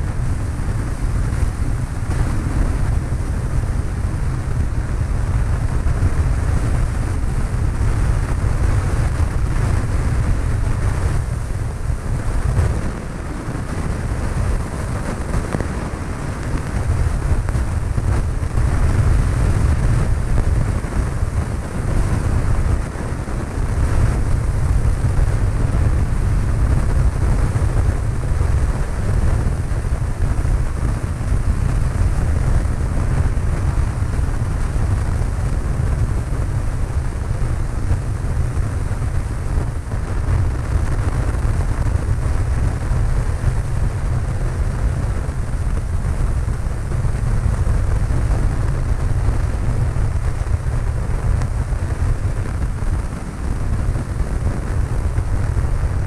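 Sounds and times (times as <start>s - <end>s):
airflow noise: 0.0s - 56.0s
airplane engine drone: 0.0s - 56.0s.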